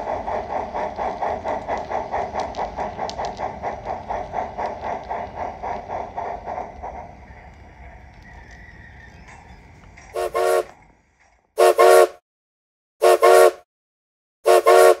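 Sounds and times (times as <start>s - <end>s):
model train running rumble: 0.0s - 12.1s, 14.5s - 15.0s
train whistle toots: 10.2s - 10.7s, 11.6s - 12.2s, 13.0s - 13.6s, 14.4s - 15.0s.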